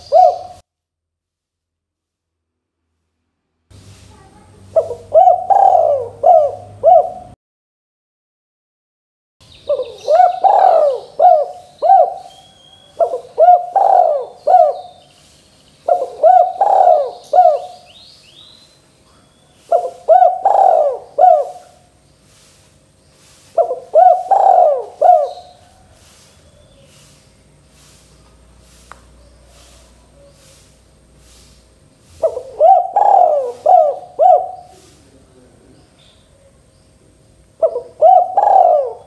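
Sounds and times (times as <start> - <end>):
dove cooing: 0.0 - 0.6, 4.7 - 7.4, 9.7 - 15.1, 15.8 - 18.0, 19.1 - 21.9, 23.5 - 26.2, 32.1 - 35.6, 37.5 - 39.0.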